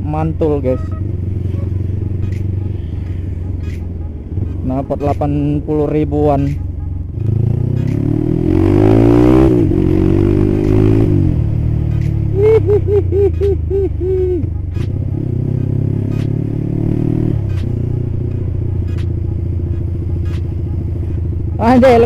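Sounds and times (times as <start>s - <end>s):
motorcycle engine running: 0.0s - 22.0s
short evenly spaced tones: 0.1s - 9.1s, 17.2s - 22.0s.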